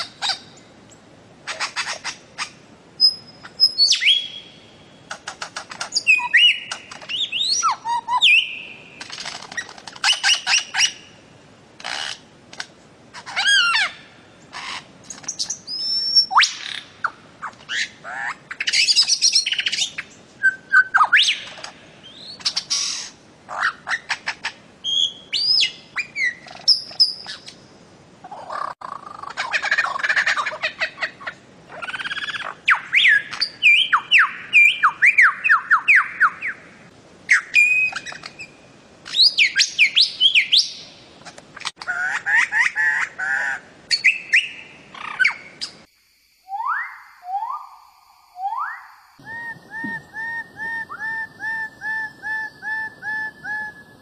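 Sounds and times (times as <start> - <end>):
bird squawks and chirps: 1.5 - 11.0, 13.1 - 20.1, 20.7 - 27.5, 39.1 - 45.9.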